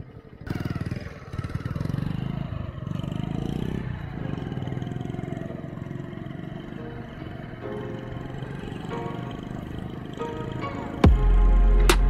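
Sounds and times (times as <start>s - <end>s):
motorcycle engine revving under load: 0.0s - 11.4s.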